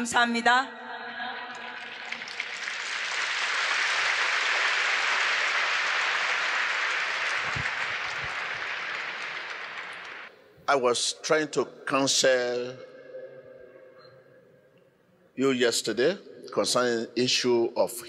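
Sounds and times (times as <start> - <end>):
crowd applauding: 1.6 - 10.3.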